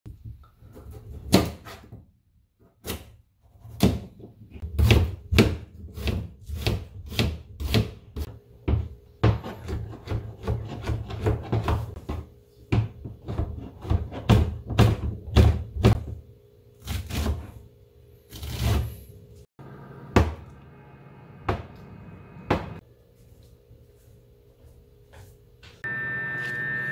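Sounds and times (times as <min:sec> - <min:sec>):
knife chopping on plastic board: 0:02.8 - 0:16.1.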